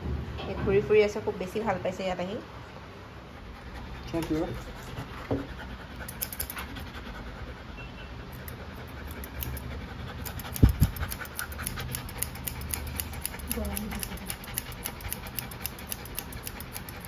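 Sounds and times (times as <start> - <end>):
dog panting: 3.2 - 17.0
shears snipping: 10.2 - 17.0.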